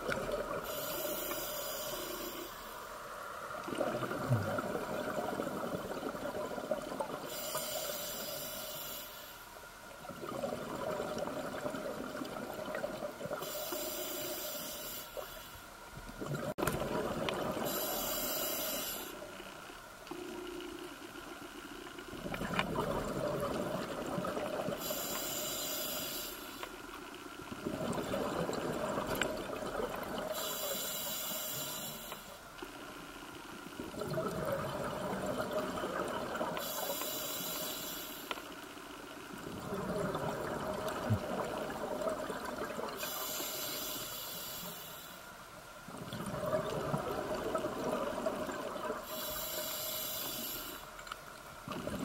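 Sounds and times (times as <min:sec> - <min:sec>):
regulator breathing hiss: 0:00.6 - 0:02.9, 0:07.3 - 0:09.5, 0:13.4 - 0:15.6, 0:17.6 - 0:19.5, 0:24.8 - 0:26.8, 0:30.3 - 0:32.4, 0:36.6 - 0:38.7, 0:43.0 - 0:45.4, 0:49.0 - 0:50.9
exhaled bubbles rushing: 0:27.6 - 0:30.3.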